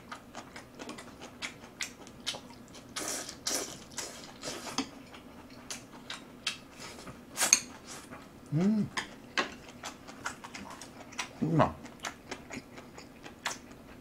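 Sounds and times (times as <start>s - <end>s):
chewing: 0.0s - 14.0s
loud mouth sounds: 8.5s - 9.0s.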